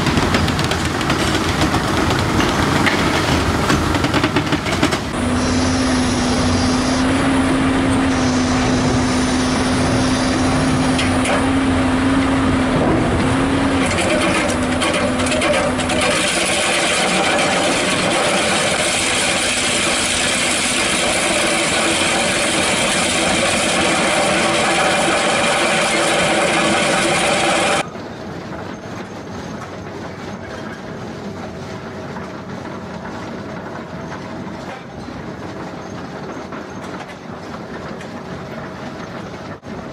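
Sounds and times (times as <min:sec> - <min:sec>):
excavator engine humming: 0:00.0 - 0:39.9
drum cutter grinding rock: 0:12.6 - 0:27.8
attachment grinding rubble: 0:13.8 - 0:27.8.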